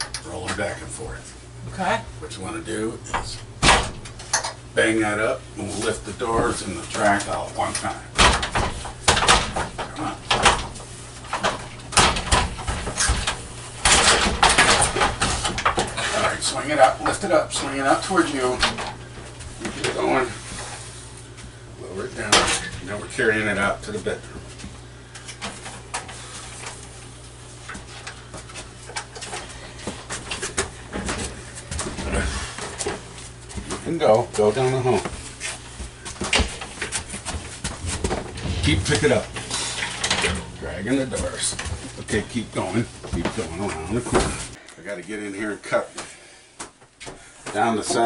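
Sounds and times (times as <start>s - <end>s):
shower door knocks and clatters: 3.1s - 4.2s, 8.2s - 16.0s, 36.2s - 39.2s.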